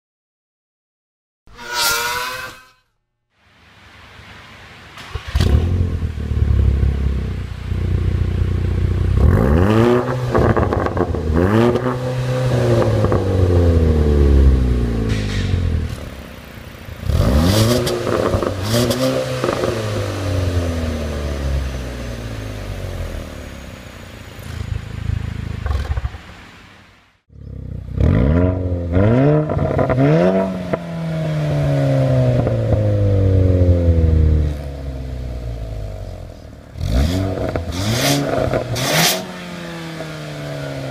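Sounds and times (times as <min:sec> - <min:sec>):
car engine revving: 0:05.0 - 0:26.7, 0:27.3 - 0:40.9.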